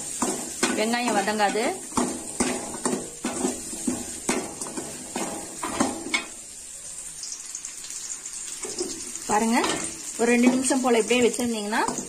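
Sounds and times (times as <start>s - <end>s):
metal ladle scraping metal pan: 0.0s - 6.4s
oil sizzling: 0.0s - 12.0s.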